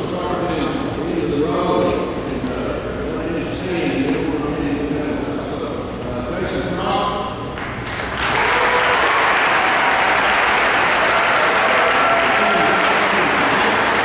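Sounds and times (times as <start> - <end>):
crowd applauding: 7.6 - 14.0.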